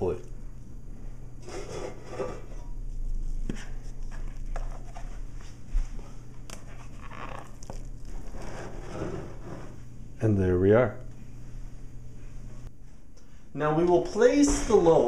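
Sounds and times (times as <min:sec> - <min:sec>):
steady low hum: 0:00.0 - 0:15.0
utensil scraping batter from bowl: 0:01.4 - 0:02.6, 0:06.7 - 0:09.8.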